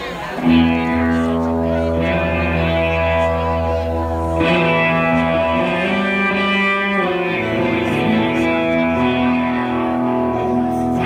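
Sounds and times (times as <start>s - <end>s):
electric guitar sustained notes: 0.0s - 11.0s
live rock band playing: 0.0s - 11.0s.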